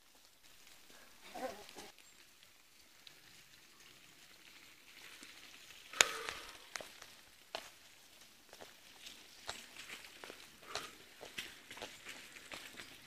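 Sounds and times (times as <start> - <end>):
bikes rustling on dirt: 0.0 - 13.0
footsteps on dirt trail: 4.5 - 13.0.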